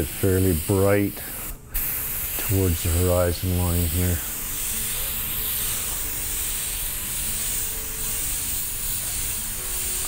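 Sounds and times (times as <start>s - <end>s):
airbrush spraying hiss: 0.0s - 10.0s.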